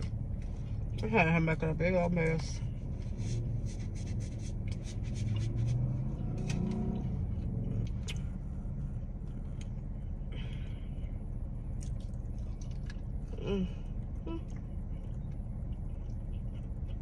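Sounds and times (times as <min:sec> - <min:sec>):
low rumble inside car: 0:00.0 - 0:17.0
food being handled and eaten: 0:11.6 - 0:17.0.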